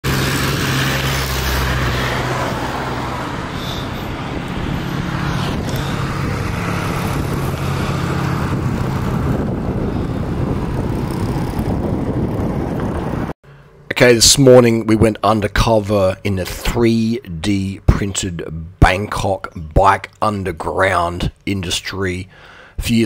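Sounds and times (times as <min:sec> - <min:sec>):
low engine hum: 0:00.0 - 0:13.4
vehicles passing: 0:00.0 - 0:14.6
tyres on road: 0:00.0 - 0:23.0.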